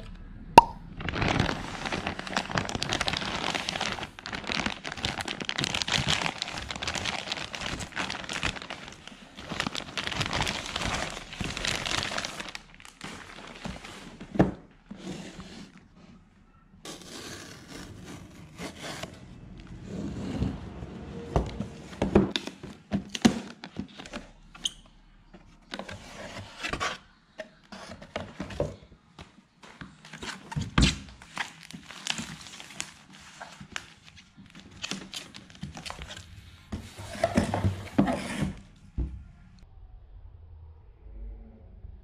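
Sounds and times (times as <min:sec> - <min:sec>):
cardboard rubbing and scraping: 0:16.9 - 0:19.2, 0:36.7 - 0:38.6.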